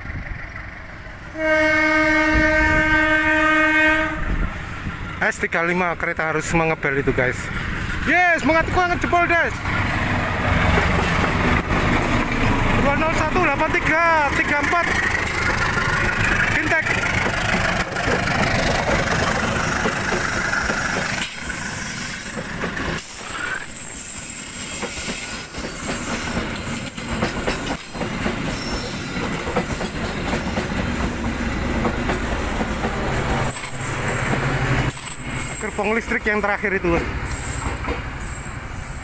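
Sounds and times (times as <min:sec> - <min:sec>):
train wheels rumbling on rails: 0:00.0 - 0:39.0
wheels clacking over rail joints: 0:07.4 - 0:38.3.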